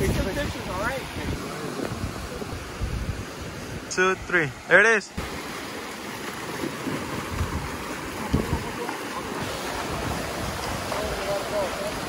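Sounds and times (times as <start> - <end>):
wind noise on microphone: 0.0 - 4.3, 6.8 - 12.0
surf washing in: 0.0 - 12.0
water splashing around legs: 5.2 - 12.0.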